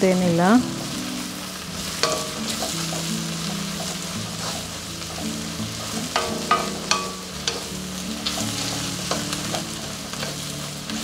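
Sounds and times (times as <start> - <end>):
vegetables sizzling: 0.0 - 11.0
wooden spatula scraping a pan: 1.8 - 6.6
spatula knocking against pan: 6.2 - 7.7.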